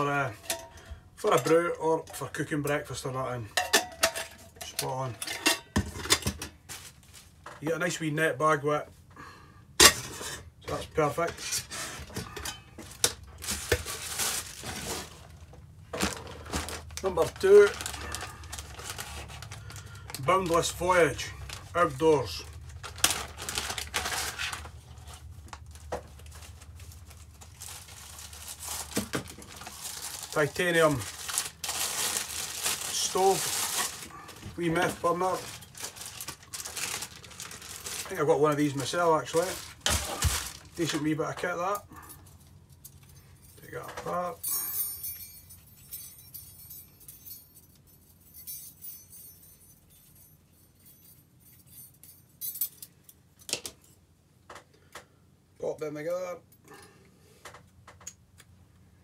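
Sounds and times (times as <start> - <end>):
plastic packaging crinkling: 12.8 - 41.0
small metal parts clinking: 42.1 - 53.5.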